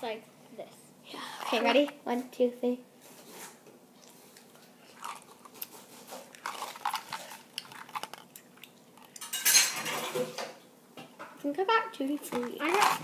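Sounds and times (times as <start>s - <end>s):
chewing jelly beans: 4.0s - 9.3s.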